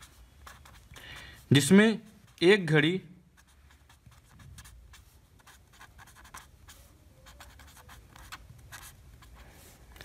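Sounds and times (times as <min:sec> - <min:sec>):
pen scratching on paper: 0:00.0 - 0:01.0, 0:03.4 - 0:09.7.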